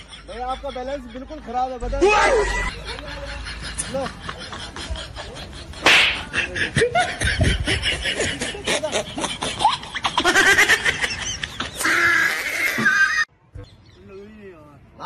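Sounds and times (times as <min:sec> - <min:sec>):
laughter in broken bursts: 0:02.5 - 0:11.8.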